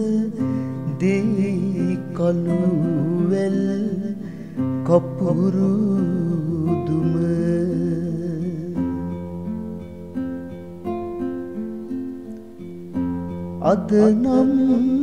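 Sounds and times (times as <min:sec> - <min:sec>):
man singing verse: 0:00.0 - 0:08.9, 0:13.6 - 0:15.0
plucked instrumental accompaniment: 0:00.0 - 0:15.0.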